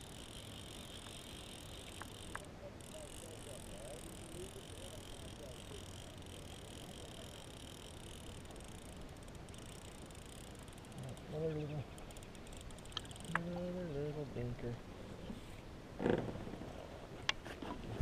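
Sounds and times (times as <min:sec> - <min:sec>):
light reel clicks: 0:00.0 - 0:13.8
fishing reel whirring: 0:00.0 - 0:14.2.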